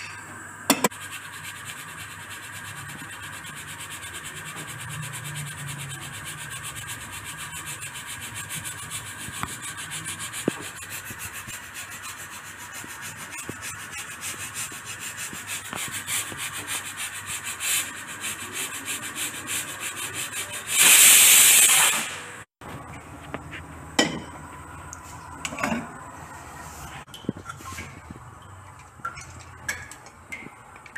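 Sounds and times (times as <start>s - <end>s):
pressure cooker steam hissing: 0.0s - 22.4s
pressure cooker whistle: 20.8s - 22.1s.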